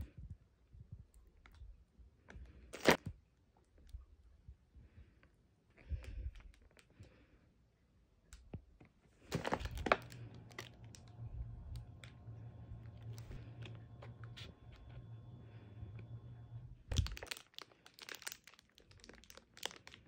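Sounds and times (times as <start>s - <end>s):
low steady hum: 0.0s - 20.0s
plastic packaging crinkling: 9.3s - 15.1s, 16.9s - 20.0s.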